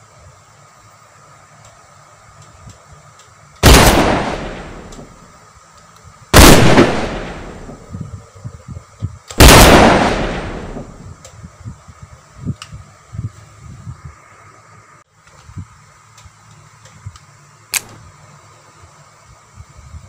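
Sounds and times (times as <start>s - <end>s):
gunshots: 3.6s - 5.1s, 6.4s - 7.8s, 9.4s - 11.0s.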